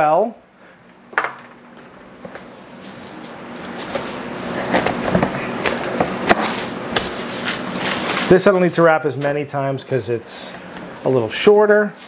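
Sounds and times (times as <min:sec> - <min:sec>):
plastic film crinkling: 0:02.8 - 0:08.8.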